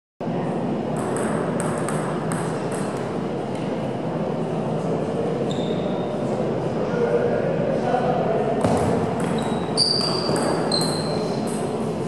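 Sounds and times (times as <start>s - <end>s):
sports hall hubbub: 0.2s - 12.0s
ping-pong ball bouncing: 0.9s - 3.0s, 8.6s - 11.7s.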